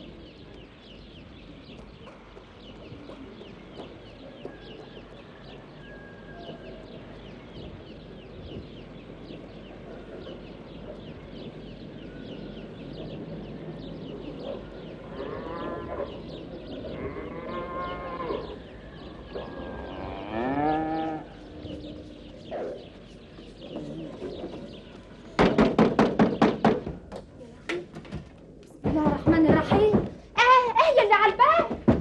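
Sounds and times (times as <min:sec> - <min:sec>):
small birds chirping: 0:00.0 - 0:31.6
farm animal calling: 0:14.2 - 0:25.3.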